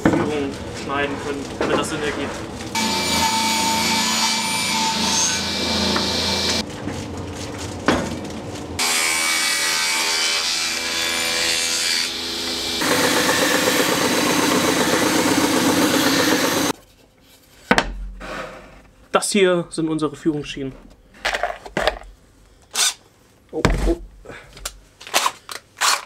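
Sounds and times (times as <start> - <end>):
table saw cutting plywood: 2.7 - 6.6, 8.8 - 16.8
belt sander rubbing: 12.4 - 16.8.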